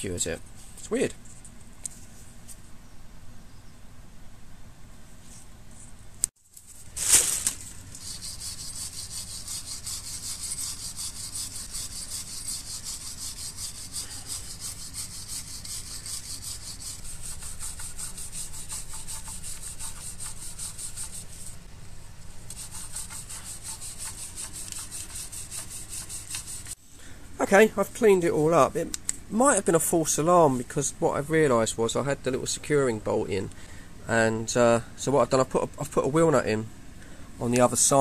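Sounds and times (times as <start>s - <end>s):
wire brush scraping metal: 6.5s - 21.7s, 22.4s - 26.8s.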